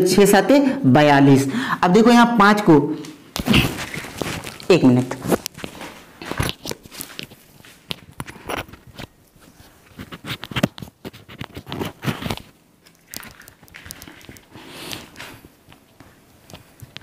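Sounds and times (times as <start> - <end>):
microphone rustling against shirt: 3.1 - 12.6.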